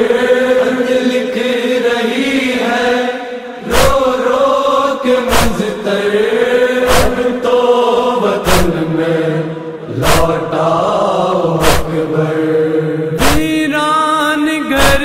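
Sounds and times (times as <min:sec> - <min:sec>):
voices chanting a lament: 0:00.0 - 0:15.0
sharp beats: 0:05.3 - 0:05.7, 0:11.6 - 0:12.0, 0:13.2 - 0:13.6.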